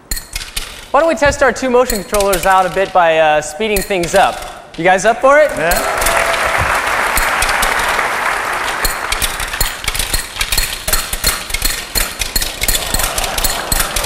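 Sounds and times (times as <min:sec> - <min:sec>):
rapid metallic clicks of ball bearings: 0:00.0 - 0:06.4, 0:07.1 - 0:08.0, 0:08.6 - 0:14.0
audience applauding: 0:05.8 - 0:09.2.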